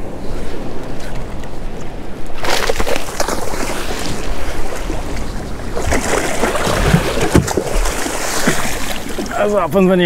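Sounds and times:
short sharp splashes: 0:02.4 - 0:09.4
water slapping against boat hull: 0:02.4 - 0:09.4
wind buffeting microphone: 0:03.1 - 0:10.0.

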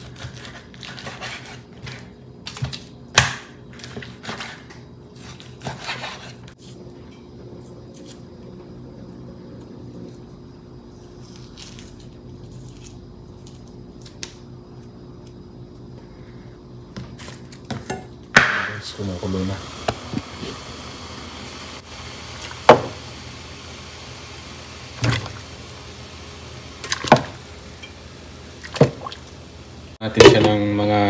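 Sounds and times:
steady low hum: 0:00.0 - 0:31.0
pots and utensils clattering: 0:30.1 - 0:30.7.

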